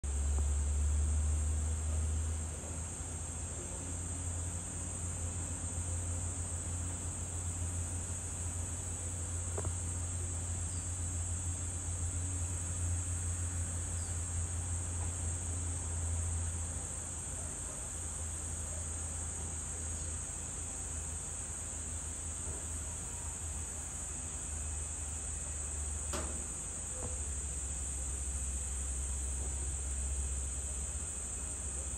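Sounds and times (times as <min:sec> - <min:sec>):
insects chirring: 0:00.1 - 0:31.9
faint click: 0:26.1 - 0:27.2.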